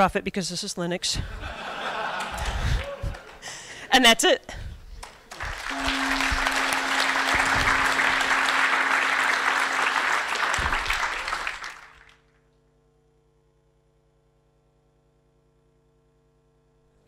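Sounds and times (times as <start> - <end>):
audience applauding: 2.0 - 3.7, 5.0 - 12.2.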